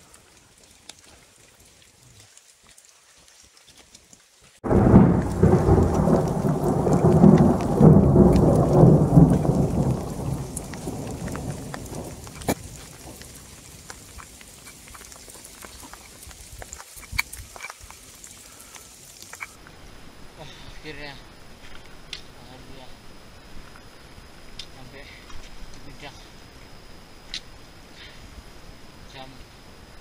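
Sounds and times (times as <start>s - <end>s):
raindrop ticks: 0.0s - 19.8s, 21.6s - 22.8s, 23.6s - 28.2s
thunder rumbling: 4.6s - 14.3s.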